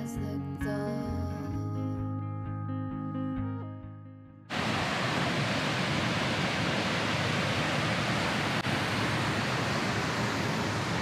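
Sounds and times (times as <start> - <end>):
background music: 0.0 - 4.5
waterfall rushing: 4.5 - 11.0.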